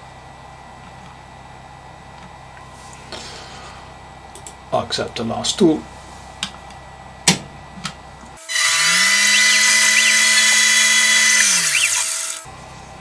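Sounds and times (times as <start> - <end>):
feed motor whines: 8.4 - 12.5
lathe spindle motor running: 8.4 - 12.5.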